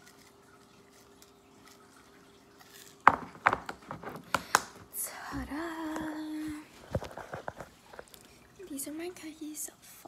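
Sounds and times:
faint steady hum: 0.0 - 10.0
objects tapping on a table: 3.1 - 4.8.

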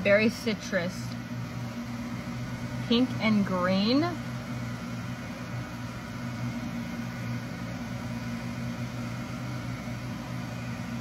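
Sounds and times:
freeze dryers humming: 0.0 - 11.0.

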